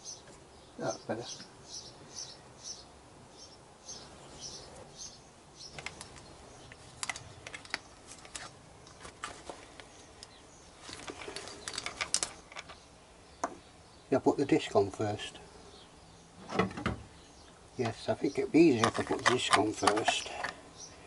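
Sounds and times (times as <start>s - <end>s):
small metallic clicks and clinks: 10.2s - 12.8s.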